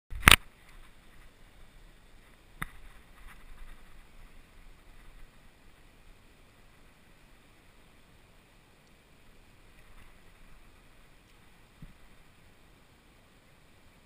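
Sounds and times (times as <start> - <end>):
sharp click: 0.1 - 0.5
wind noise on microphone: 0.1 - 5.9.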